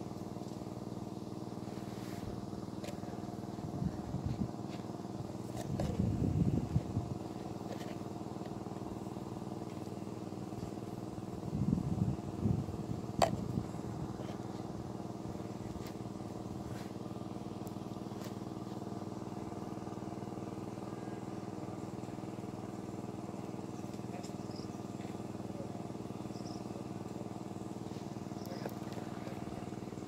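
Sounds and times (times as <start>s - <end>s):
motor humming: 0.0s - 30.0s.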